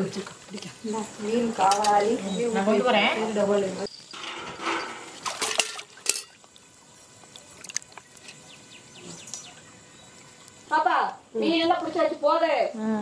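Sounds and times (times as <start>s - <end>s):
fish splashing and thrashing in water: 4.6s - 8.4s
water dripping: 5.1s - 8.4s.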